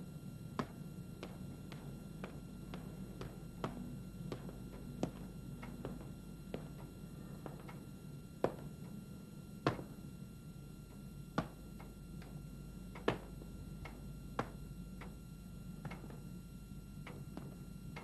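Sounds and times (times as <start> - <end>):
low steady hum: 0.0 - 18.0
footsteps on hard floor: 0.6 - 6.8.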